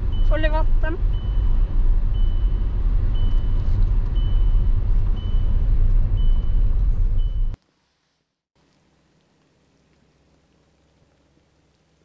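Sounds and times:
car rumbling on gravel road: 1.0s - 7.6s.

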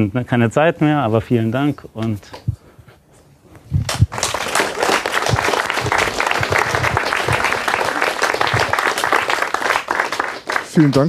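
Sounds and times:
audience applause: 3.9s - 11.0s.

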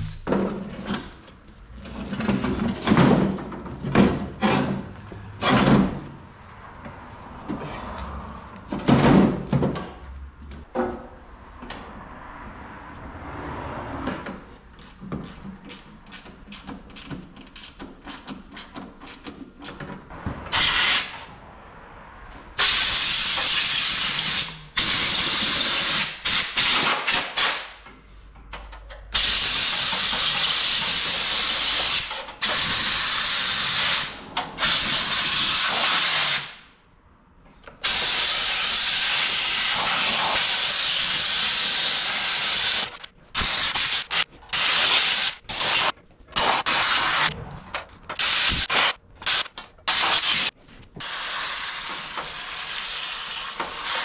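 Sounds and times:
parts knocking and clattering: 0.0s - 8.0s, 8.6s - 11.9s, 14.0s - 20.5s
compressed air hissing blasts: 20.5s - 21.2s, 22.6s - 27.5s, 29.2s - 36.6s, 37.8s - 47.3s.

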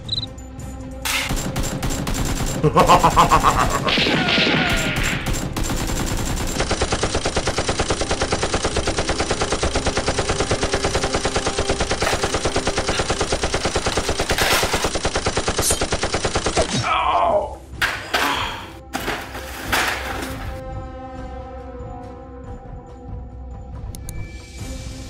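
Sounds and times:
automatic gunfire: 1.3s - 16.7s.

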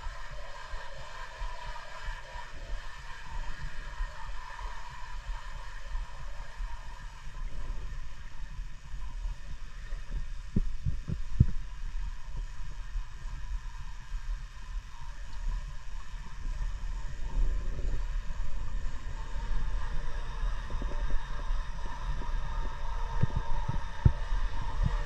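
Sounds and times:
muffled underwater rumble: 0.0s - 25.0s.

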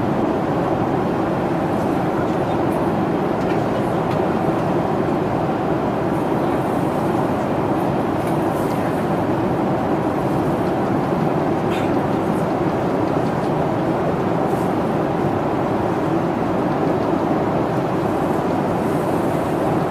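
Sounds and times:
airliner cabin noise: 0.0s - 19.9s.

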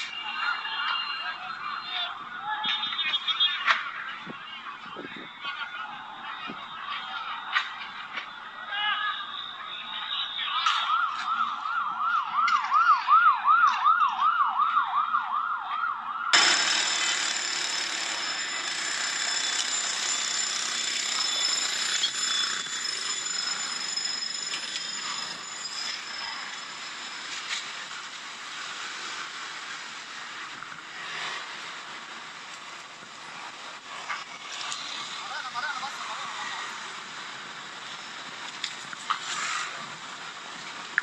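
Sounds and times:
siren yelping: 10.8s - 27.9s
high steady tones: 16.4s - 28.3s
noisy rush: 16.4s - 39.0s.

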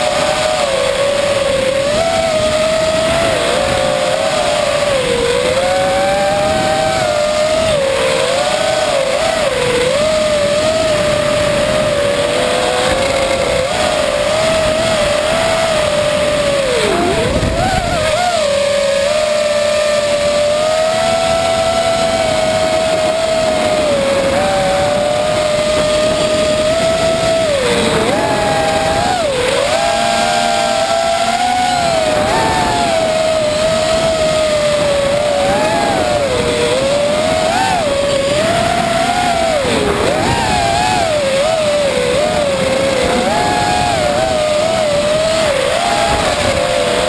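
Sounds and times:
drone motors whining: 0.0s - 47.0s
rush of air noise: 0.0s - 47.0s.

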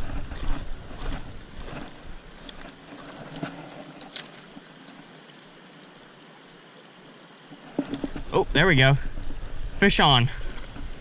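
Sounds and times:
wind rumble on microphone: 0.0s - 3.4s, 7.8s - 11.0s
creekside ambience: 0.0s - 11.0s.

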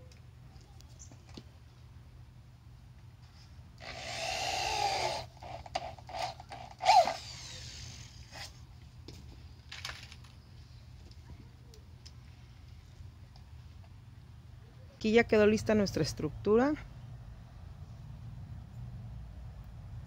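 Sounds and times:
electric drill driving screw: 3.8s - 8.5s.

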